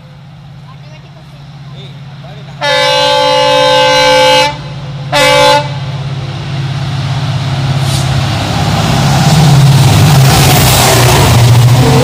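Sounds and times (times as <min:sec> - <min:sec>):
locomotive rumbling: 0:00.0 - 0:12.0
locomotive horn blasts: 0:02.6 - 0:05.8.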